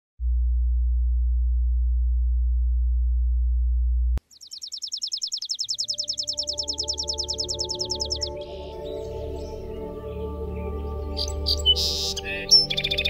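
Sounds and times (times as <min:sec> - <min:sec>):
sparrow trilling: 0:04.2 - 0:13.0.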